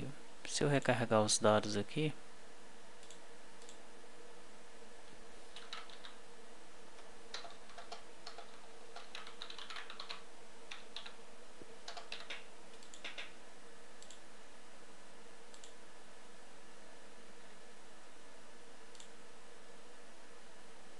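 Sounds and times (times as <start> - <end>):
typing on computer keyboard: 5.5 - 6.2, 7.3 - 11.2, 11.8 - 13.4
keyboard key clicks: 11.9 - 13.3.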